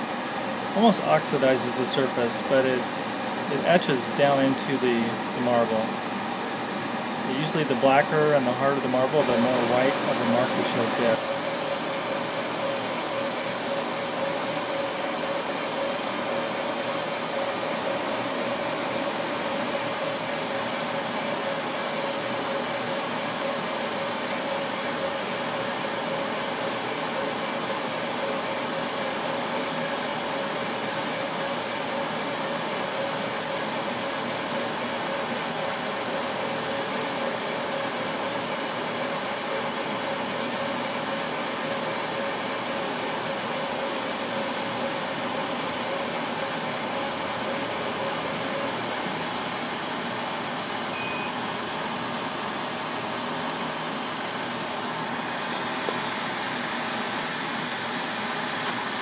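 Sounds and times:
laser engraver fans whirring: 0.0s - 59.0s
short beep: 50.9s - 51.4s.

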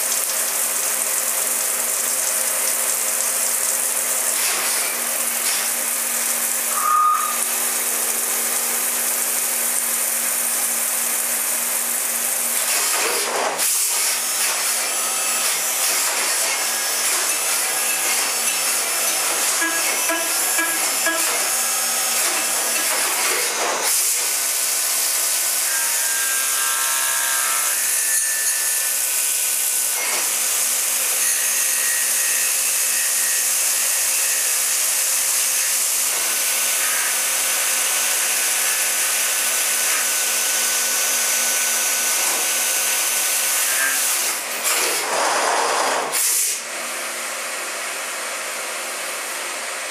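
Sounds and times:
spindle cutting whine: 4.3s - 11.2s.

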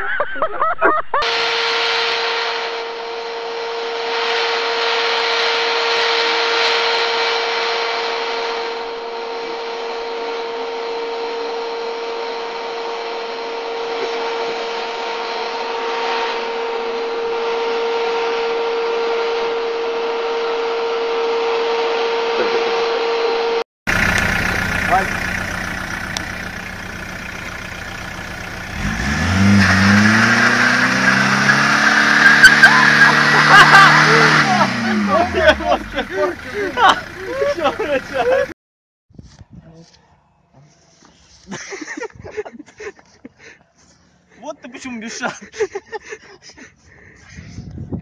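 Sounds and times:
vacuum cleaner running: 1.2s - 38.5s.

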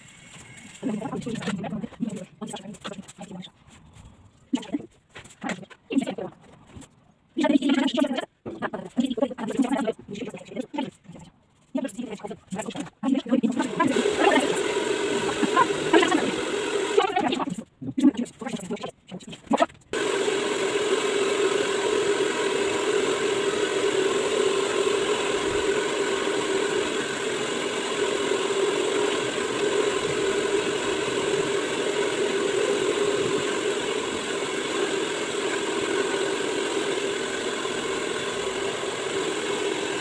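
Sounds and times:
hair dryer blowing: 13.4s - 17.5s, 20.0s - 40.0s.

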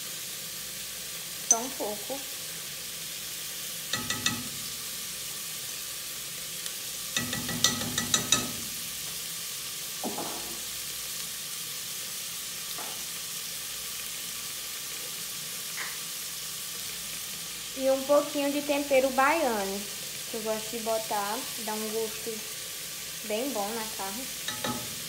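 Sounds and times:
chicken sizzling in pot: 0.0s - 25.0s
metal spoon clinking: 1.5s - 2.0s, 3.9s - 4.8s, 7.2s - 8.8s, 24.5s - 25.0s.

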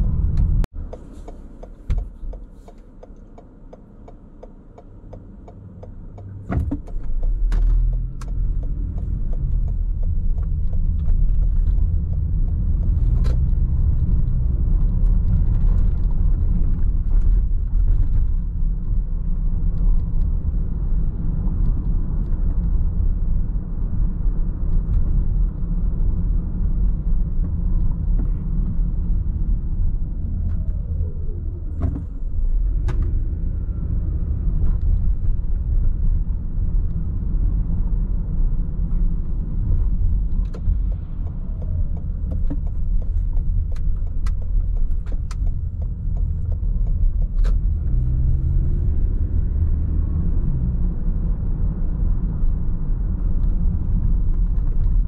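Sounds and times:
sharp clicks and knocks: 0.0s - 18.4s, 30.0s - 33.4s, 38.8s - 49.0s
car engine and road noise: 0.0s - 55.0s.

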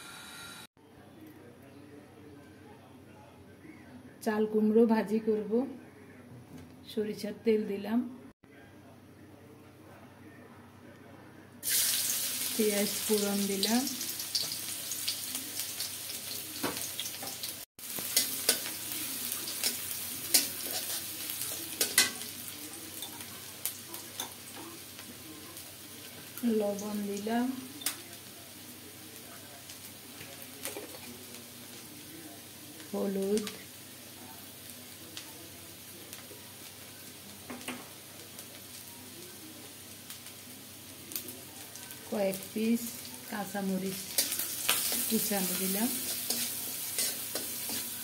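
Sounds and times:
onion sizzling in oil: 11.6s - 48.0s.

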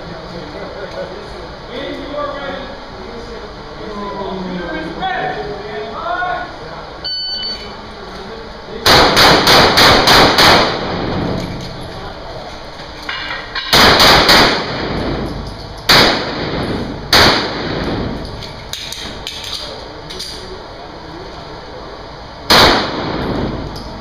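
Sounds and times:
handgun shots echoing indoors: 8.8s - 11.8s, 13.2s - 19.6s, 22.5s - 23.8s.

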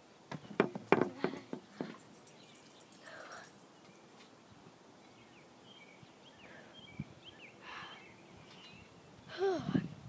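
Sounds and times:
songbird chirps: 0.0s - 9.4s
girl breathy vocal sound: 9.3s - 9.9s.

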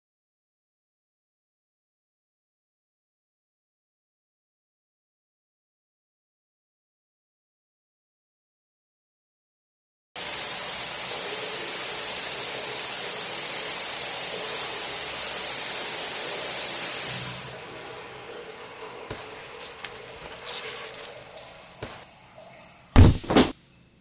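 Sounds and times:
shower spray hissing: 10.2s - 17.6s, 19.1s - 22.1s
water dripping: 17.2s - 22.9s.

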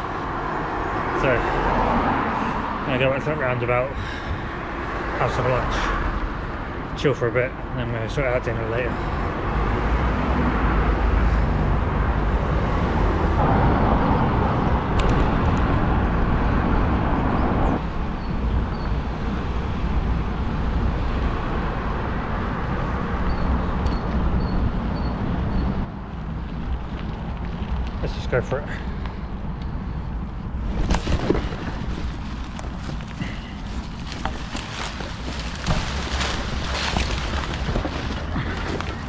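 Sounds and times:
bicycle tyre noise on road: 0.0s - 7.0s, 9.0s - 39.0s
motor traffic passing: 19.1s - 39.0s.

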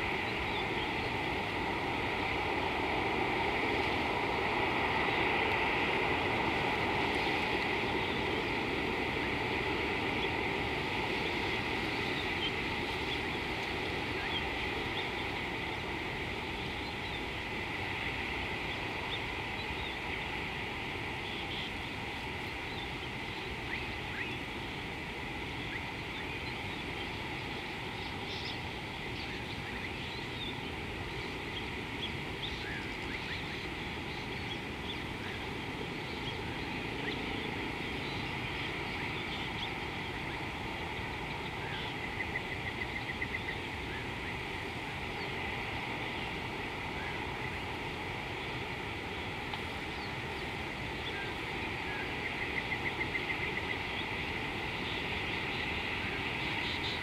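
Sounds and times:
river hiss: 0.0s - 57.0s.

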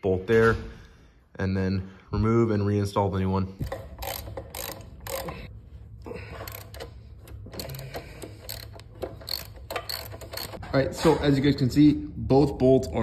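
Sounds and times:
metallic clicks of wrench on bolt: 3.6s - 5.4s, 6.5s - 10.6s.

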